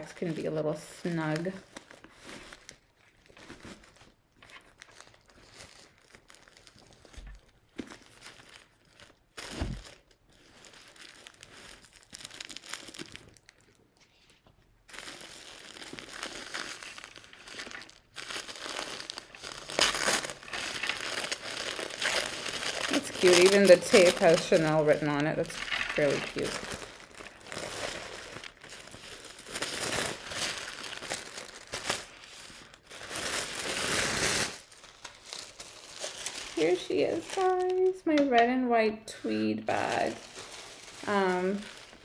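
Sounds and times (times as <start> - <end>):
paper crinkling: 1.2 - 38.0, 39.3 - 42.0
fabric bag rustling: 14.9 - 37.9, 39.3 - 42.0.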